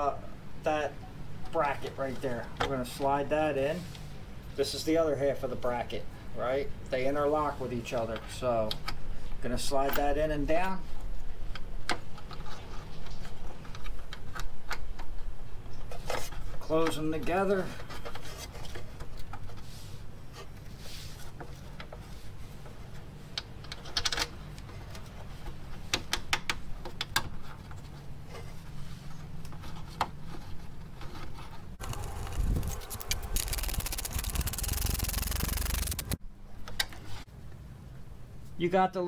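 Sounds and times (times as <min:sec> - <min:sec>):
clicks and scrapes of handling: 0:27.1 - 0:36.2
rubbing and scraping: 0:29.6 - 0:36.2.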